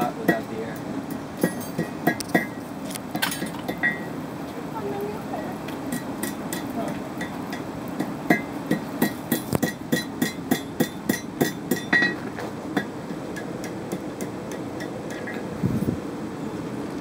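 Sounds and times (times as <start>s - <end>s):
hammer ringing on anvil: 8.3s - 12.2s.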